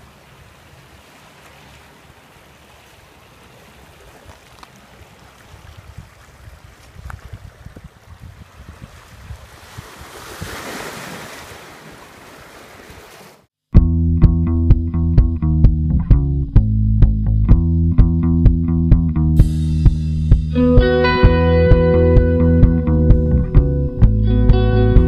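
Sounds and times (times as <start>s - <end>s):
waves washing over rocks: 0.0s - 13.5s
wind buffeting microphone: 5.5s - 10.7s
music with bass guitar: 13.7s - 25.0s.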